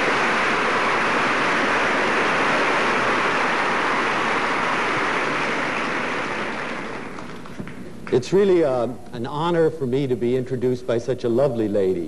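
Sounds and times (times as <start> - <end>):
large audience applauding: 0.0 - 7.9.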